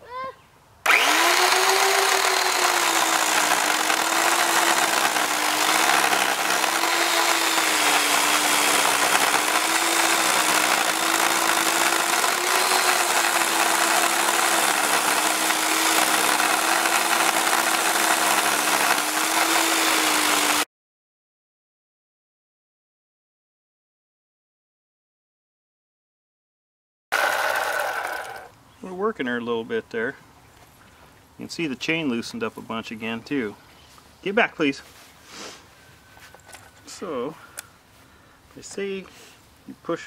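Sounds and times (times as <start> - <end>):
electric chainsaw cutting log: 0.8 - 20.7, 27.1 - 28.5.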